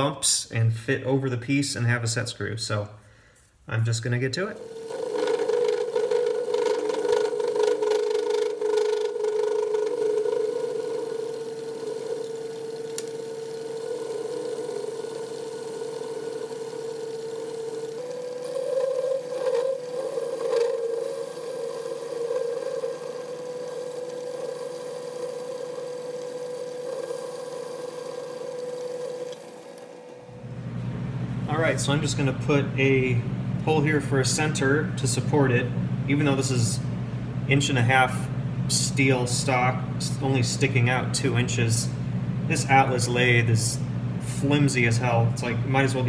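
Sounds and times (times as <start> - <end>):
metal lathe whining: 4.6 - 30.4.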